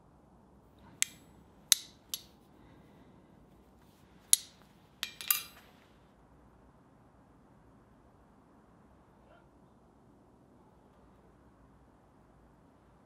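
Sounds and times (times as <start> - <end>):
metal clicking on anvil: 0.9 - 2.3, 4.3 - 5.6.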